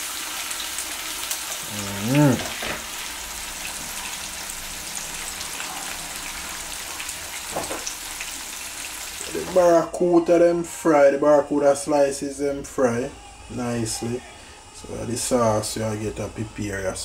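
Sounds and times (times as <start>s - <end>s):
fish sizzling in hot oil: 0.0s - 9.7s
person humming: 1.6s - 2.8s.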